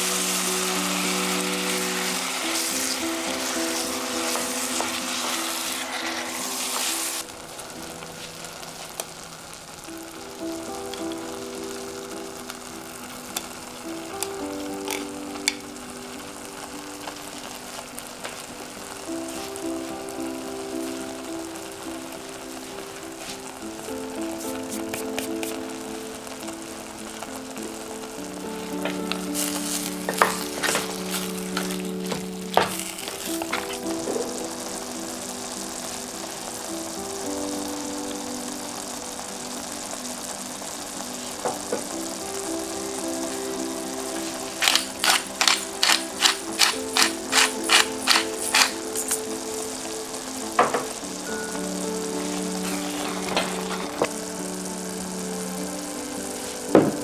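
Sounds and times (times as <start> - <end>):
soft background music: 0.0 - 57.0
vegetables sizzling in oil: 0.0 - 57.0.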